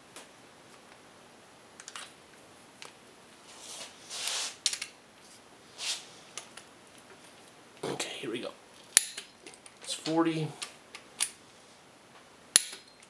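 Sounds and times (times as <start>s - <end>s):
short scraping rustles: 3.5s - 4.6s, 5.2s - 6.2s.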